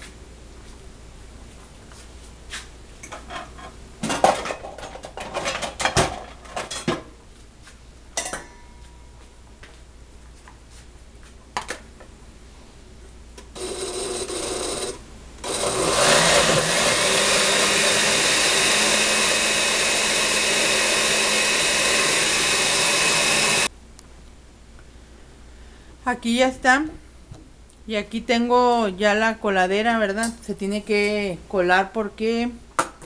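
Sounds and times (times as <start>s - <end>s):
blender grinding: 13.6s - 23.7s.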